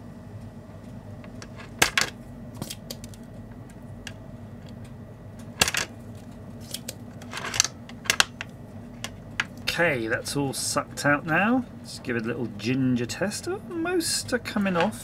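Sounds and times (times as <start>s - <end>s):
desoldering pump snapping: 1.2s - 9.7s.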